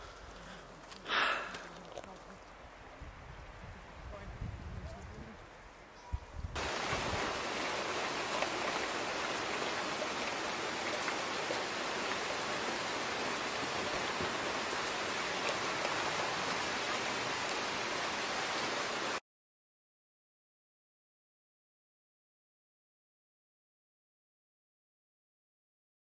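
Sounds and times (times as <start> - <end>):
steady rain falling: 0.0 - 5.9, 6.6 - 19.2.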